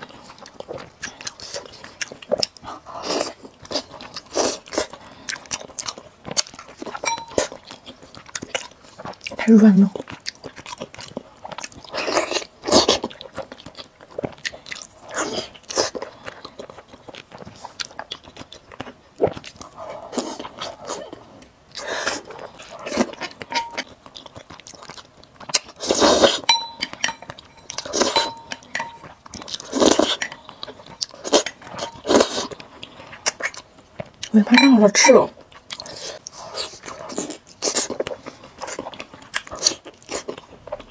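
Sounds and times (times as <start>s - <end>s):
wet biting and chewing: 0.0s - 34.4s, 35.4s - 40.9s
slurping noodles: 25.8s - 26.5s.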